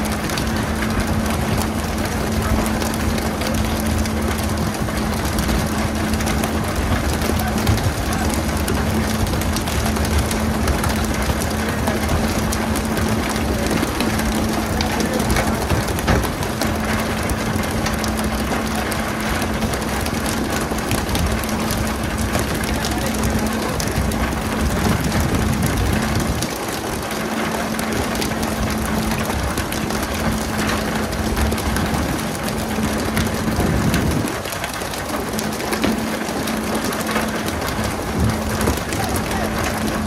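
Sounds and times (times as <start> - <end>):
boat engine humming: 0.0 - 40.0.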